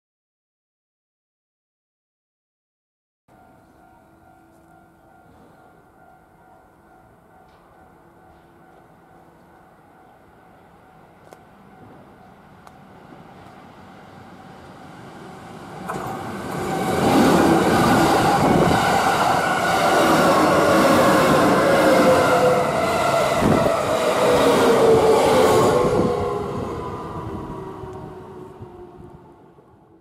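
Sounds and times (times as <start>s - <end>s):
descending train whine: 3.4s - 30.0s
train wheels rumbling on rails: 11.2s - 29.4s
train knocks: 11.8s - 12.2s, 15.8s - 21.6s.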